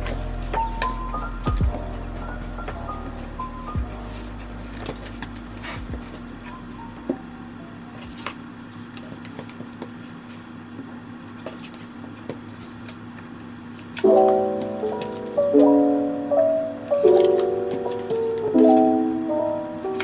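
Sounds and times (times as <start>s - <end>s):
background music: 0.0s - 7.5s, 14.1s - 20.0s
steady low hum: 0.0s - 20.0s
paper handling: 4.0s - 6.9s, 11.2s - 13.0s.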